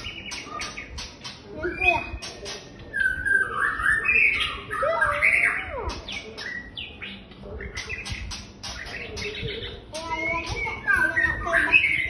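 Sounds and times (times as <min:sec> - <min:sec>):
bird whistling phrases: 0:01.6 - 0:07.2.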